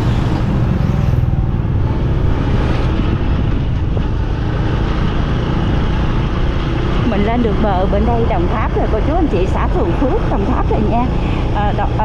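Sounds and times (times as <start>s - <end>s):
motorbike engine: 0.0s - 12.0s
road rumble: 0.0s - 12.0s.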